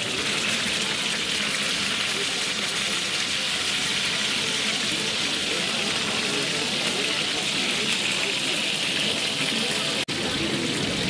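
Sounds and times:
meat sizzling on griddle: 0:00.0 - 0:11.0.

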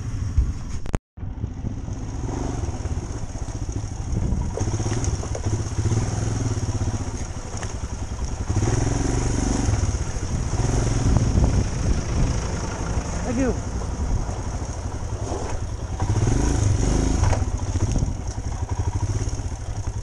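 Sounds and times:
motorcycle engine at low speed: 0:00.0 - 0:20.0.

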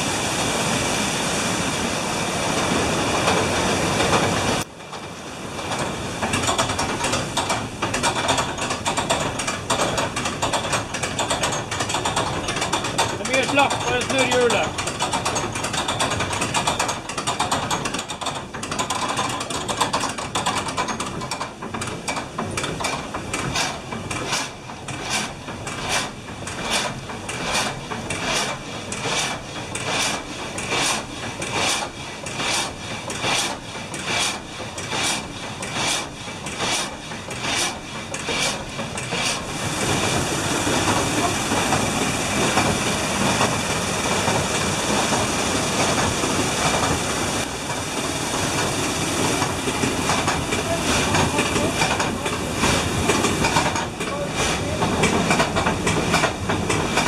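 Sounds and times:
rushing water: 0:00.0 - 0:57.0
frame saw rasping through log: 0:22.8 - 0:45.2.

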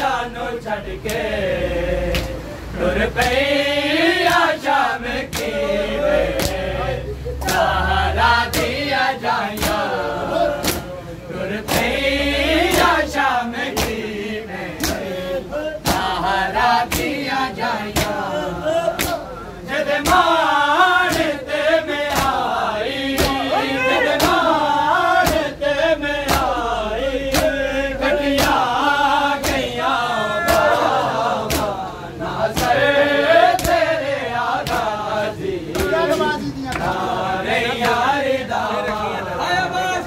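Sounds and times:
men chanting together: 0:00.0 - 0:40.0
hands slapping on chests: 0:01.0 - 0:01.3, 0:02.1 - 0:02.4, 0:03.2 - 0:03.4, 0:04.2 - 0:04.6, 0:05.3 - 0:05.6, 0:06.3 - 0:06.6, 0:07.4 - 0:07.7, 0:08.4 - 0:08.8, 0:09.5 - 0:10.9, 0:11.6 - 0:12.0, 0:12.7 - 0:13.0, 0:13.6 - 0:14.1, 0:14.8 - 0:15.1, 0:15.8 - 0:16.2, 0:16.8 - 0:17.3, 0:17.9 - 0:18.3, 0:18.9 - 0:19.3, 0:19.9 - 0:20.4, 0:21.0 - 0:21.4, 0:22.0 - 0:22.5, 0:23.1 - 0:24.6, 0:25.2 - 0:25.6, 0:26.2 - 0:26.6, 0:27.3 - 0:27.6, 0:28.2 - 0:28.7, 0:29.4 - 0:31.8, 0:32.5 - 0:32.8, 0:33.5 - 0:33.9, 0:34.5 - 0:35.0, 0:35.7 - 0:37.0.

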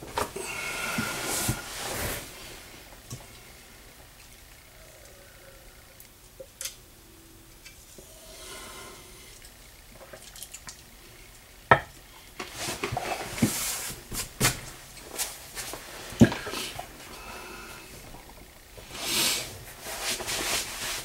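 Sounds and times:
rustling and hissing: 0:00.1 - 0:03.9, 0:12.3 - 0:21.0.

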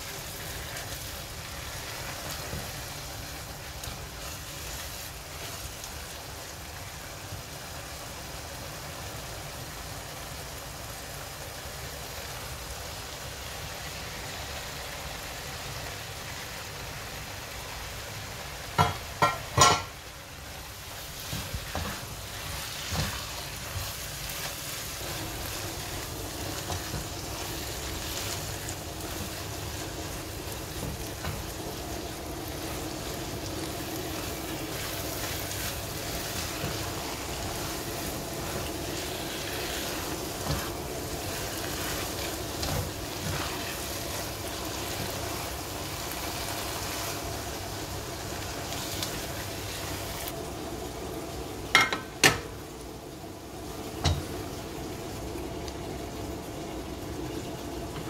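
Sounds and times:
food sizzling in a wok: 0:00.0 - 0:58.0
spatula knocking against pan: 0:18.8 - 0:19.9
spatula stirring: 0:20.9 - 0:47.3.

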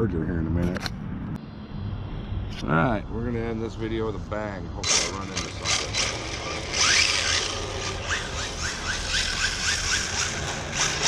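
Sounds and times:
electric motor whining: 0:04.8 - 0:11.0.

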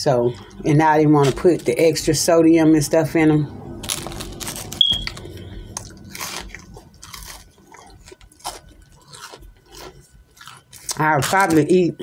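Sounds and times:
crunchy chewing: 0:03.7 - 0:12.0.

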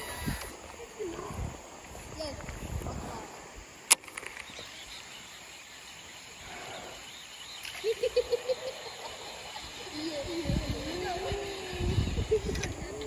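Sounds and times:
insect buzz: 0:00.0 - 0:13.0.

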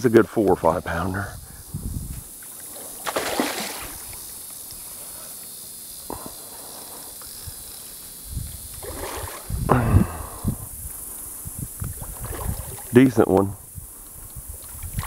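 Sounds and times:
fish thrashing and splashing: 0:03.0 - 0:04.1.

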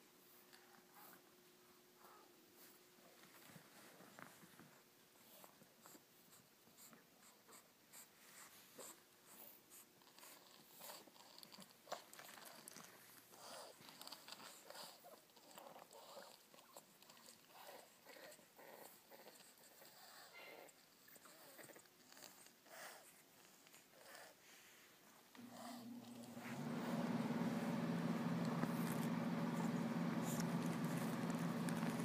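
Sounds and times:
small paws scratching on fabric: 0:02.0 - 0:32.0
puppies breathing: 0:12.0 - 0:32.0.

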